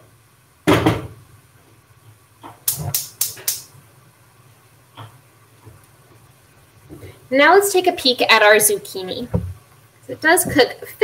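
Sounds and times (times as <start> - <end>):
burner igniter clicking: 2.6 - 3.7.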